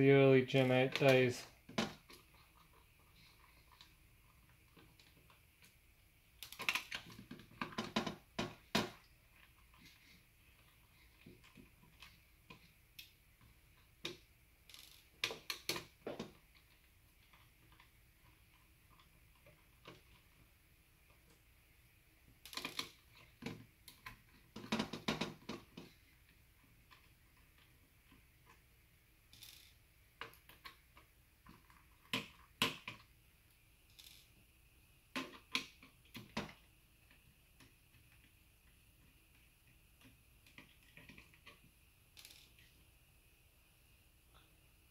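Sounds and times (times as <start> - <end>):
small parts clicking on wooden bench: 6.4 - 20.4, 22.4 - 28.6, 29.3 - 33.1, 33.9 - 34.4, 35.1 - 42.7.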